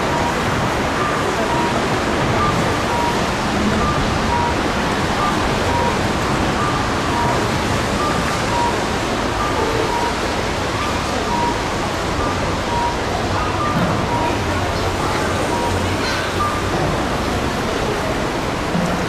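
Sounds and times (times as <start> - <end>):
street crowd noise: 0.0 - 19.0
electronic two-note beep: 2.4 - 4.6, 12.2 - 14.4.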